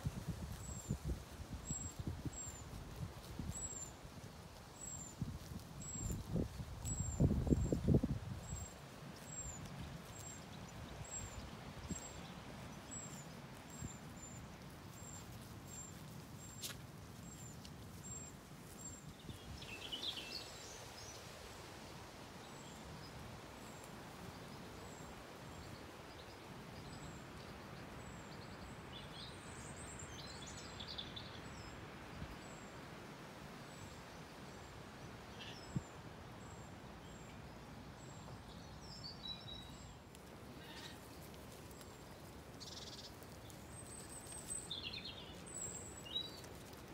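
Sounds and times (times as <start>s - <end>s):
small birds chirping: 36.4s - 46.9s.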